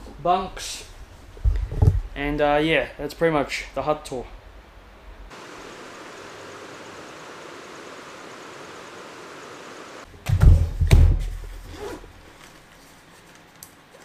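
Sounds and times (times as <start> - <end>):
steady hiss: 2.2 - 10.1.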